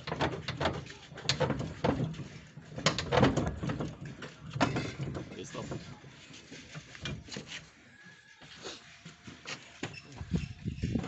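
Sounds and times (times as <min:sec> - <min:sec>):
sharp metal knocks and clicks: 0:00.0 - 0:02.2, 0:02.8 - 0:05.5.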